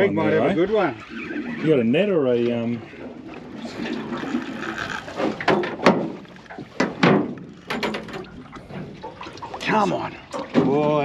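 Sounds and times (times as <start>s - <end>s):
sharp knocks and thumps: 4.3s - 6.2s, 6.8s - 8.9s.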